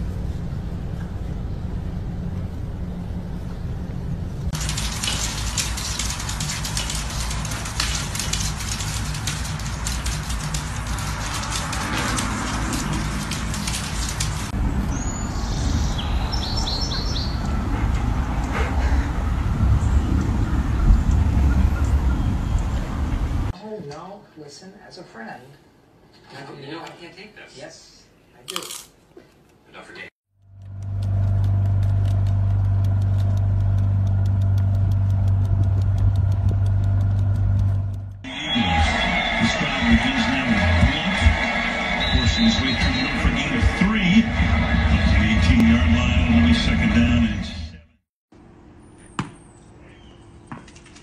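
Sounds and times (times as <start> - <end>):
low mechanical hum: 0.0 - 15.8, 30.4 - 38.2
bird chirping: 14.9 - 17.7, 49.0 - 50.5
low rumble: 17.4 - 23.5, 30.4 - 38.3
fast even ticking: 30.4 - 38.2.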